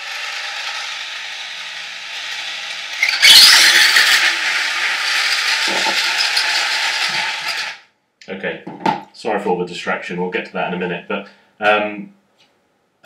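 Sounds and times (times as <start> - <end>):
toy car motor whirring: 0.0 - 7.9.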